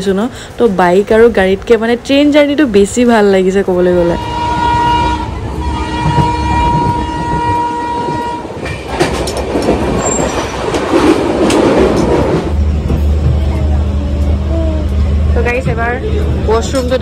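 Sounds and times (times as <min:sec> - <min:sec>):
train horn blast: 0:04.0 - 0:08.7
train wheels clattering on rails: 0:05.9 - 0:17.0.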